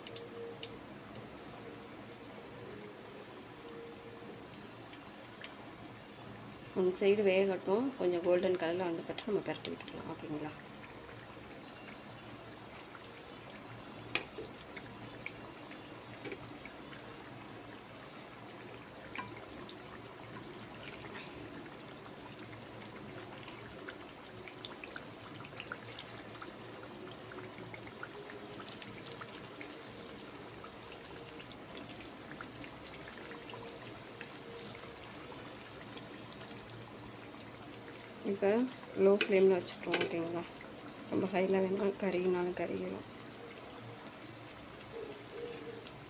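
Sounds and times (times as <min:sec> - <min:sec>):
oil popping and crackling: 0:12.2 - 0:46.0.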